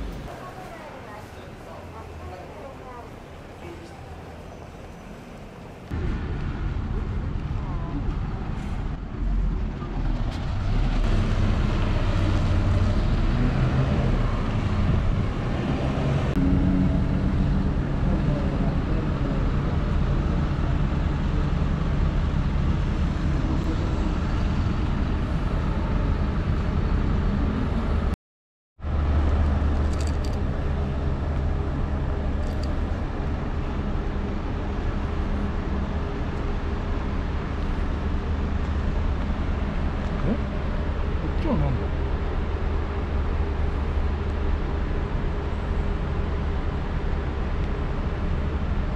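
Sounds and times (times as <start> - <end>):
bus diesel engines idling: 0.0 - 5.9, 16.9 - 28.1
passing road traffic: 0.0 - 28.2.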